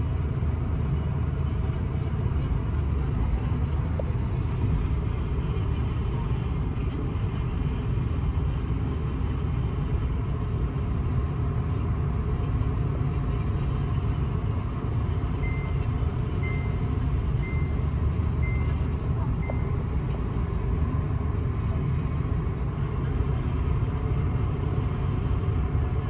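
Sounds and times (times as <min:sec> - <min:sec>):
low rumble of vehicles: 0:00.0 - 0:26.0
reversing alarm beeps: 0:15.4 - 0:18.8, 0:19.4 - 0:19.7.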